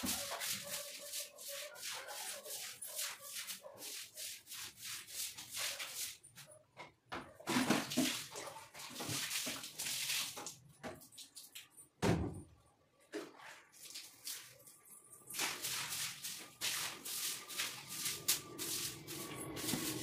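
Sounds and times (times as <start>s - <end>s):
broom scrubbing wet floor: 0.0s - 6.6s, 7.4s - 11.4s, 13.2s - 20.0s
water splashing: 7.5s - 11.7s, 13.3s - 20.0s.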